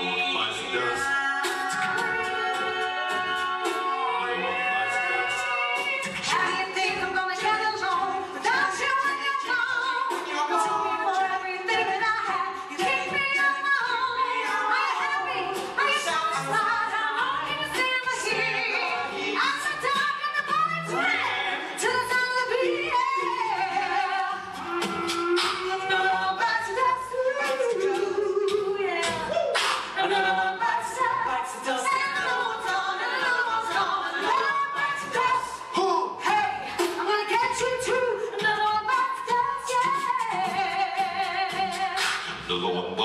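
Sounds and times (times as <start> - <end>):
male backing harmonies: 0.0 - 6.6
woman singing lead: 0.0 - 42.3
mouth percussion clicks: 24.5 - 26.1, 27.4 - 30.0, 38.4 - 42.5.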